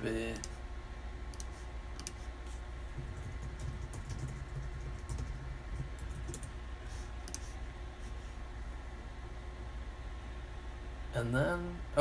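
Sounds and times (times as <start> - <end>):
steady low hum: 0.0 - 12.0
keyboard typing: 3.0 - 6.6.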